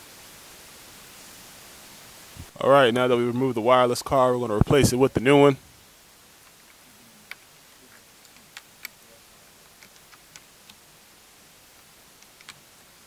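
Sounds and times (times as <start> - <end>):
small plastic parts clicking: 9.6 - 10.8, 12.2 - 12.7.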